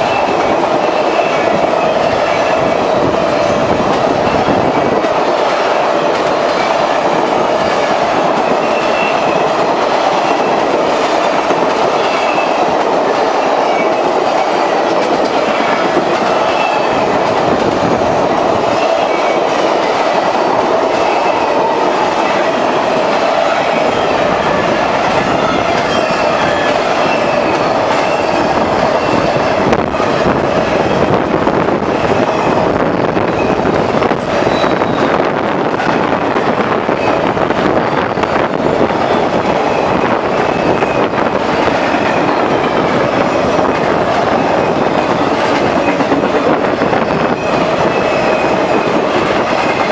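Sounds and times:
train wheels on rails clacking: 0.0 - 49.9
faint high wheel squeals: 23.4 - 29.6, 34.4 - 35.2.

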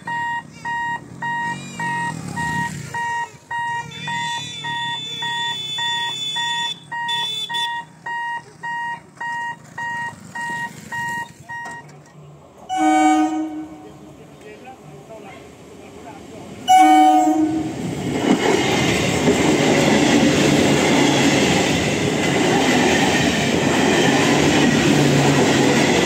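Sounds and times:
level crossing warning buzzer: 0.0 - 11.9.

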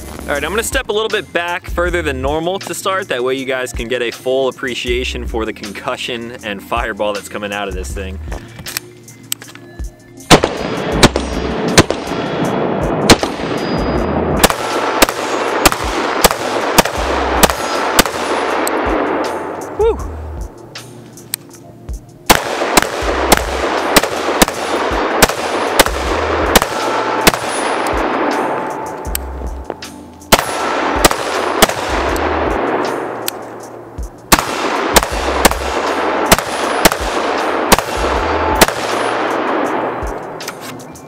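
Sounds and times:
background music with low beat: 0.0 - 41.0
gunshots: 10.3 - 13.8, 14.4 - 19.7, 22.3 - 29.0, 30.3 - 33.5, 34.3 - 40.3.

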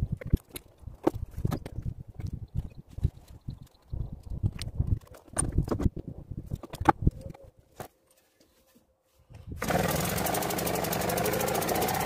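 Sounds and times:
outboard engine running: 9.6 - 12.0
propeller churning water: 9.6 - 12.0.

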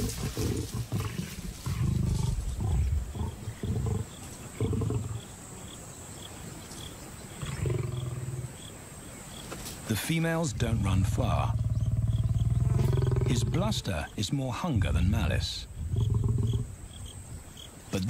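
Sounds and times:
lions growling: 0.0 - 5.4, 7.3 - 8.6, 10.5 - 14.1, 15.7 - 16.8.

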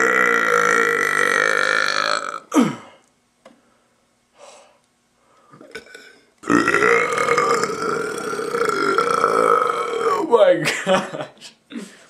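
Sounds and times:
man burping: 0.0 - 3.0, 5.6 - 10.4.

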